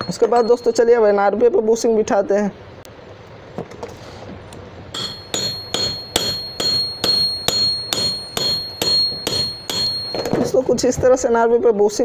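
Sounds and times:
hammer striking steel drift: 0:05.0 - 0:10.6.

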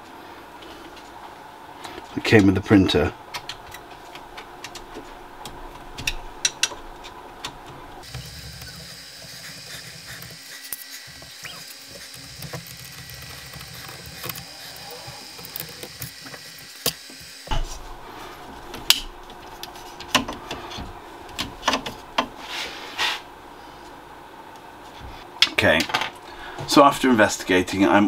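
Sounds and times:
sharp clicks and knocks: 0:03.3 - 0:10.4, 0:11.1 - 0:14.5, 0:18.7 - 0:22.3.

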